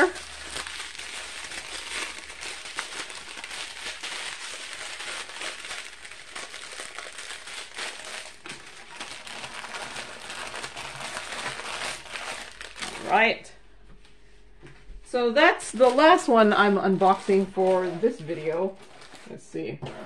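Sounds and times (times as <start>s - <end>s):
plastic bags crinkling: 0.0s - 13.5s, 15.4s - 20.0s.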